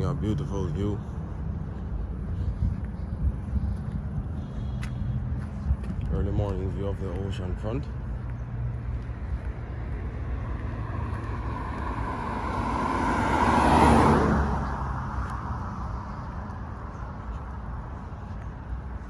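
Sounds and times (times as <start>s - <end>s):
low traffic rumble: 0.0s - 19.0s
car driving past: 8.4s - 17.5s.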